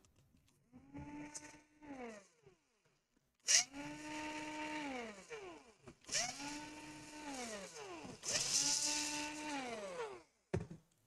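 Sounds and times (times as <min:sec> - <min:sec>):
electric screwdriver whine: 0:03.5 - 0:10.2.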